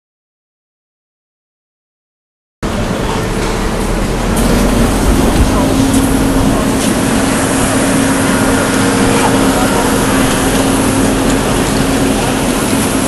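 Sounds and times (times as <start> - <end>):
city noise rush: 2.6 - 13.0
faint crowd voices: 2.6 - 13.0
low steady hum: 2.6 - 13.0.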